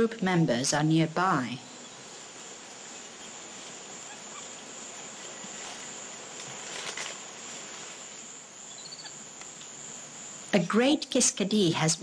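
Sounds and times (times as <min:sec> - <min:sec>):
forest ambience hiss: 0:00.0 - 0:12.0
faint rustles or clicks: 0:01.9 - 0:08.4
high-pitched insect drone: 0:08.0 - 0:10.5.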